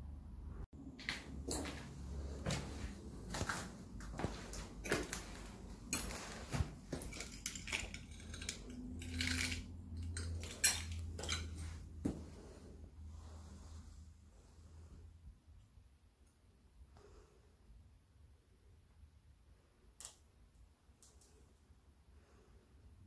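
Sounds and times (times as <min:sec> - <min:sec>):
footsteps crunching on glass: 0:01.0 - 0:09.5.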